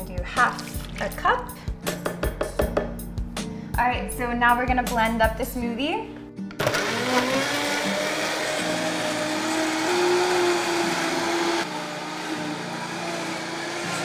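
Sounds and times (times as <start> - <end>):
blender motor running: 6.6 - 14.0.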